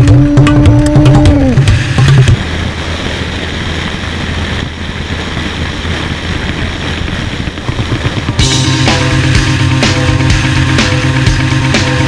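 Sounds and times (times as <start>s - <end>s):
wind and road noise: 0.0s - 12.0s.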